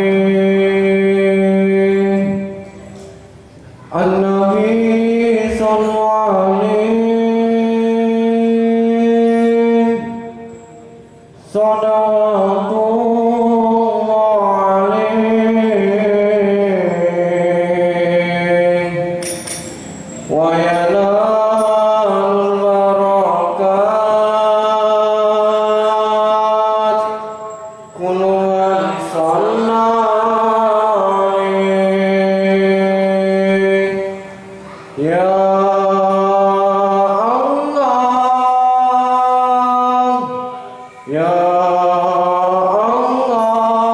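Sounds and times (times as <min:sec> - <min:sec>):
man singing unaccompanied: 0:00.0 - 0:02.8, 0:03.8 - 0:19.3, 0:20.2 - 0:43.9.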